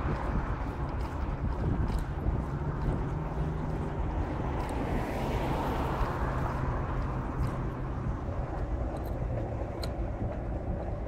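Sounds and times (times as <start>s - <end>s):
low engine hum: 0.0s - 11.0s
wind on microphone: 0.0s - 11.0s.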